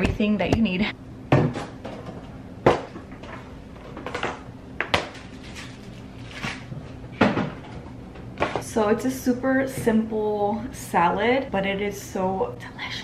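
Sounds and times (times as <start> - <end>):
food packages rustling: 5.0 - 7.0.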